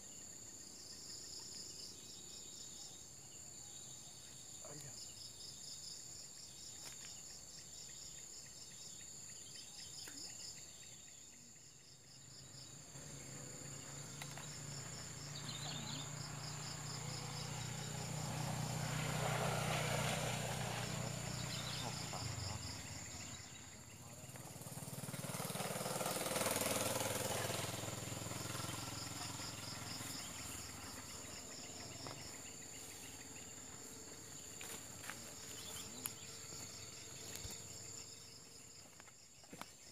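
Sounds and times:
insects trilling: 0.0 - 39.9
vehicle passing: 12.9 - 38.6.

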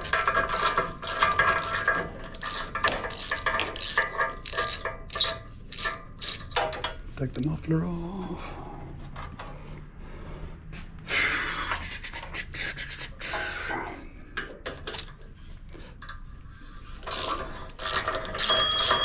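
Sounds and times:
ratchet clicking: 0.0 - 6.9, 14.4 - 15.2, 17.0 - 19.0
metal scraping: 0.0 - 7.2.

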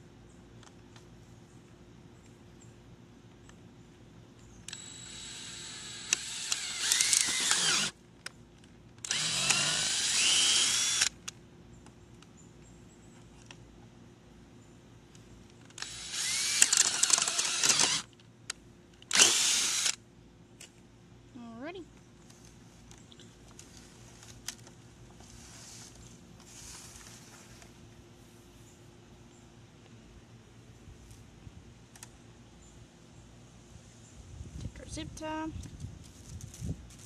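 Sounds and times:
power drill boring through plastic: 4.7 - 7.9, 9.0 - 11.1, 15.8 - 18.1, 19.1 - 20.0.

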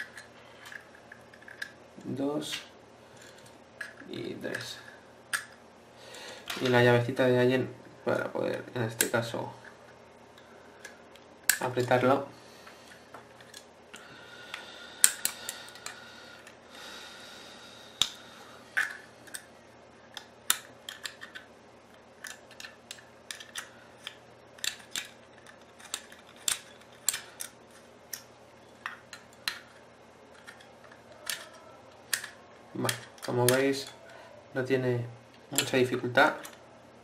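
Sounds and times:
allen key clicking on screws: 30.4 - 34.0.

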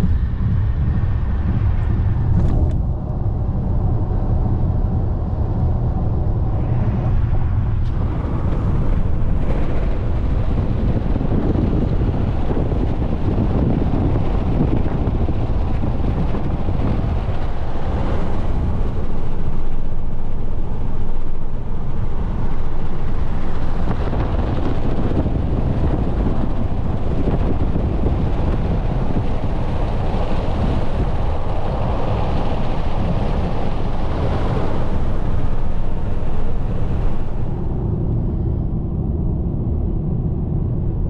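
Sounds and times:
wind hiss: 6.3 - 38.9.

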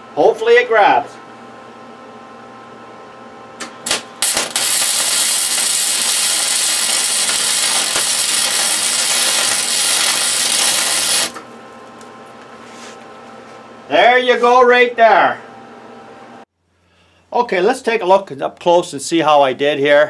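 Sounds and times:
welder arc sputtering: 3.6 - 11.5.

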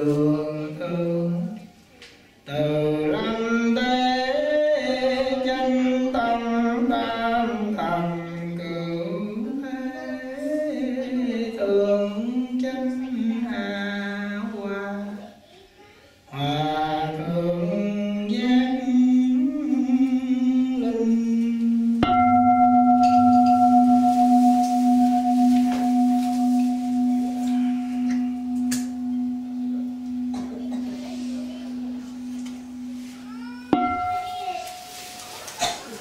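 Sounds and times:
monk chanting: 2.5 - 15.3, 16.3 - 36.0
bowl bell ringing: 21.8 - 35.8.

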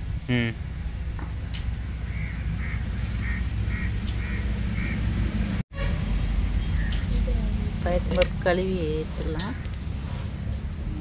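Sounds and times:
bird calling: 2.0 - 5.1, 6.6 - 7.4.

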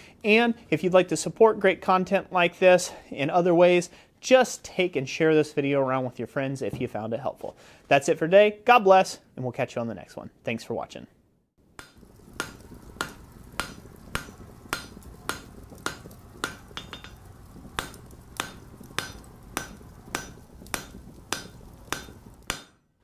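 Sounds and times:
hammer striking an anvil: 11.8 - 17.2, 17.8 - 22.8
steady low rumble: 12.0 - 22.5.

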